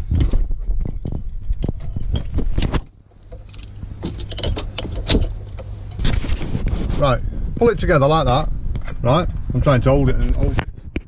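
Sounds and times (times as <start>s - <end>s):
microphone handling rumble: 0.0s - 11.0s
steering wheel lock clicking and rattling: 0.3s - 6.0s.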